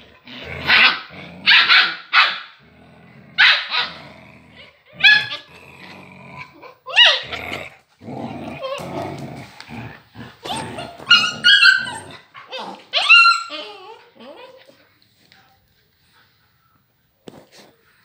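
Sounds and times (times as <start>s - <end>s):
dogs growling: 0.0s - 1.7s, 2.6s - 14.9s
dogs yipping and barking: 0.7s - 2.5s, 4.9s - 5.5s, 6.6s - 7.5s, 10.4s - 14.6s.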